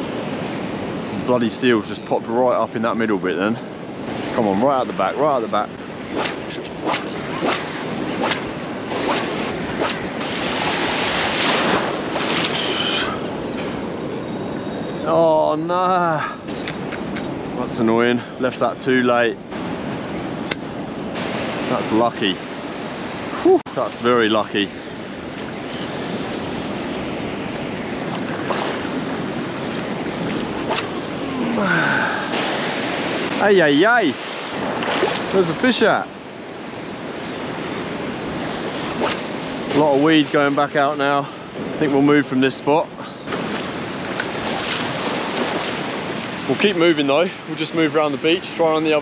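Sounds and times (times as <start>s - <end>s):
ocean surf washing over reef: 0.0s - 49.0s
wind buffeting microphone: 3.3s - 49.0s
sharp splashes: 6.0s - 13.2s, 28.1s - 29.2s, 30.2s - 35.6s, 43.3s - 46.4s.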